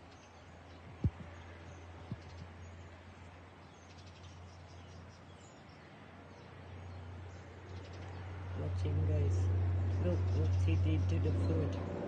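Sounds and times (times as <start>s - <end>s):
bird chirps: 0.0s - 2.9s, 9.8s - 11.9s
low steady hum: 0.0s - 12.0s.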